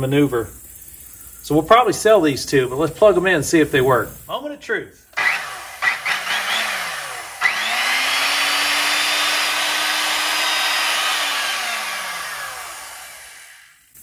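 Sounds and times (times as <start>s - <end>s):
circular saw motor whining: 5.2s - 13.9s.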